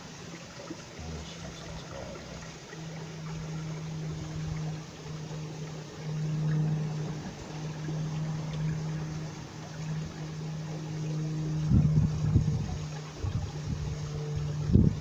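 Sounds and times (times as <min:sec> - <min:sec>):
low hum: 0:00.0 - 0:15.0
stream water over rocks: 0:00.0 - 0:15.0.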